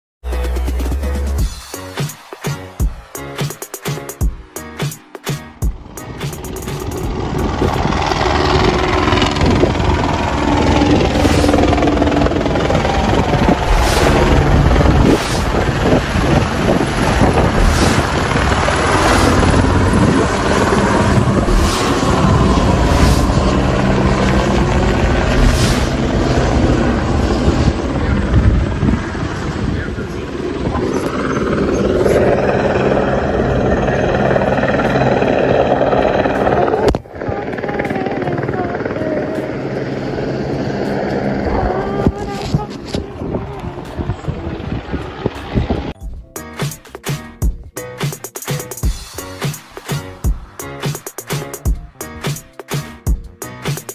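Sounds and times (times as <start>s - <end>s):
helicopter passing overhead: 2.2s - 46.0s
wind buffeting microphone: 5.8s - 46.0s.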